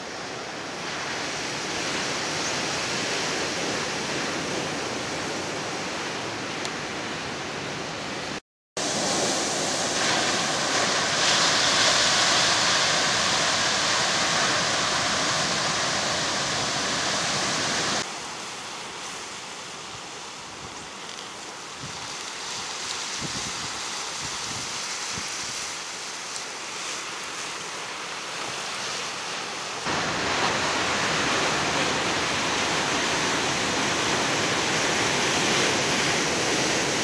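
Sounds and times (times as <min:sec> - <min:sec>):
surf breaking on rocky shore: 0:08.8 - 0:19.8, 0:21.4 - 0:37.0.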